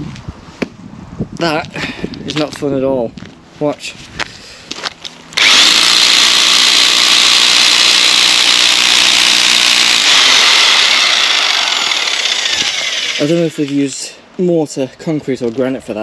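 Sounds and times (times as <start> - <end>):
electric breaker hammering mortar: 5.4 - 13.4.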